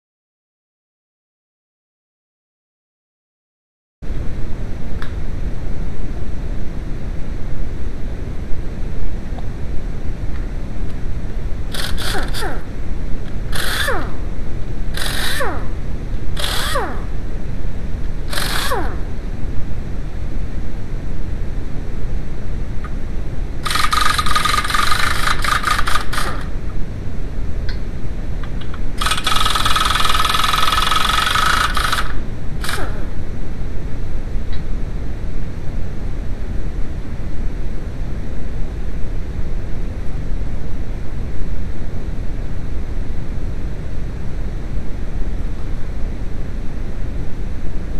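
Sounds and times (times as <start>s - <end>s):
pneumatic impact wrench bursts: 11.7s - 12.7s, 13.5s - 14.2s, 15.0s - 15.7s, 16.4s - 17.1s, 18.3s - 19.0s, 23.6s - 26.5s, 29.0s - 33.1s.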